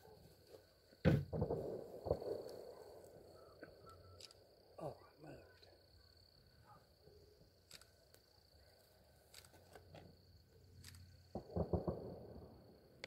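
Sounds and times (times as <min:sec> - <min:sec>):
sharp clicks: 0:03.8 - 0:04.4, 0:07.6 - 0:08.2.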